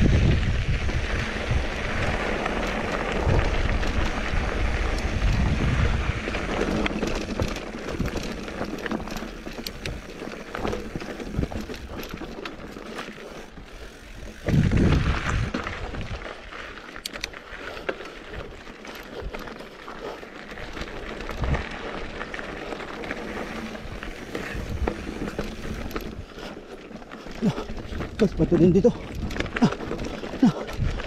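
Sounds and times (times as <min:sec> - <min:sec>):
wind rush on microphone: 0:00.0 - 0:08.5, 0:13.8 - 0:16.3, 0:23.4 - 0:26.3, 0:27.4 - 0:31.0
bike rattling over bumps: 0:00.0 - 0:31.0
bike tyres on dirt and rocks: 0:00.0 - 0:31.0.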